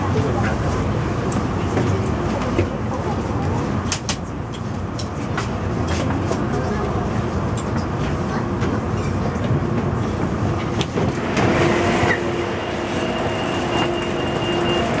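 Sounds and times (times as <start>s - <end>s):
train carriage rumble: 0.0s - 15.0s
train doors sliding open: 7.6s - 15.0s.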